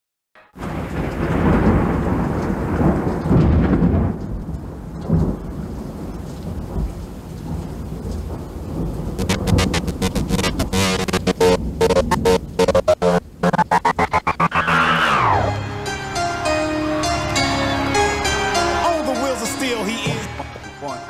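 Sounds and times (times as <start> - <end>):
rumbling thunder: 0.6 - 12.6
rain: 0.6 - 21.0
music: 9.2 - 21.0.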